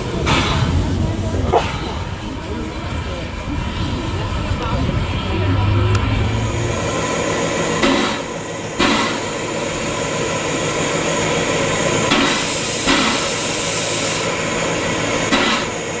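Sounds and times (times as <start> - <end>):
steam locomotive exhaust chuffs: 0.0 - 16.0
loud hiss of steam: 6.2 - 16.0.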